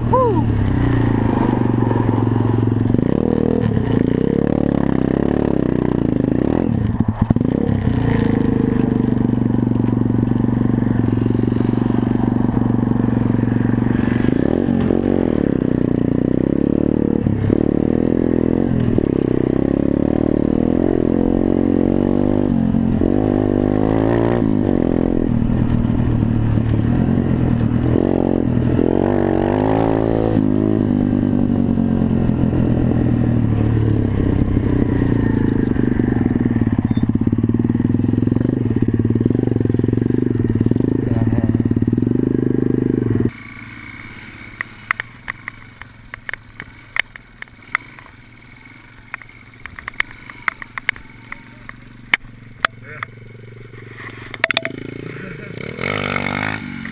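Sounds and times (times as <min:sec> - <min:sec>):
motorcycle engine revving: 0:00.0 - 0:56.9.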